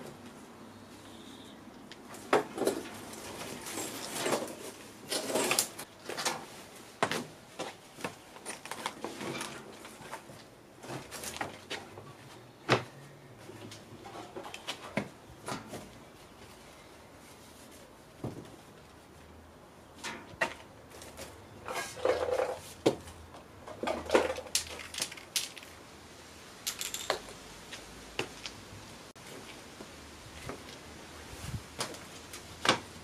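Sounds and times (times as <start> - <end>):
objects knocking and scraping: 20.0 - 25.7.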